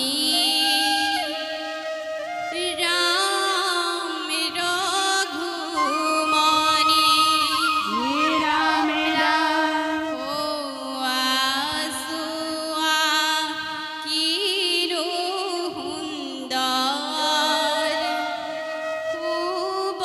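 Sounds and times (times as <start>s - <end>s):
bamboo flute melody: 0.2s - 4.0s, 5.7s - 11.0s, 17.8s - 20.0s
women singing: 2.5s - 18.1s.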